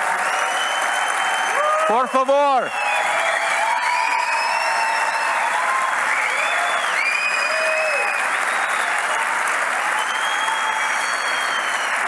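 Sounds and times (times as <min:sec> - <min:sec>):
large audience applauding: 0:00.0 - 0:12.0.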